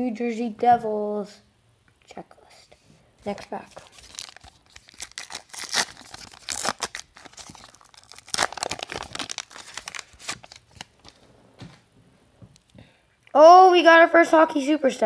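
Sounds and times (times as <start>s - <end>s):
foil wrapper tearing and crinkling: 3.7s - 11.2s.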